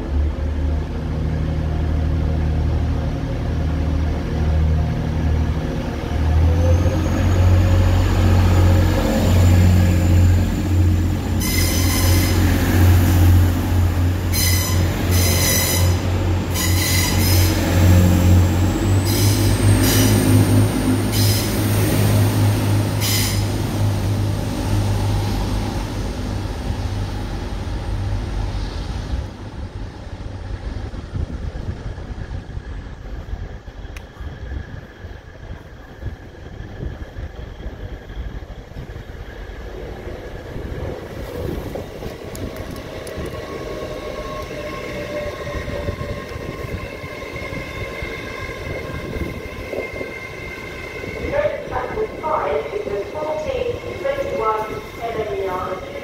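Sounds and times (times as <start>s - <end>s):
train engine hum: 0.0s - 56.0s
train wheel squeals: 11.3s - 12.6s, 14.3s - 20.3s, 21.1s - 21.6s, 23.0s - 23.5s.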